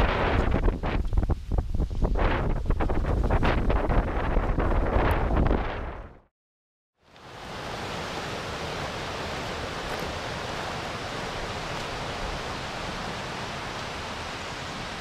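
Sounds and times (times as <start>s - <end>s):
waterfall and stream rushing: 7.1s - 15.0s.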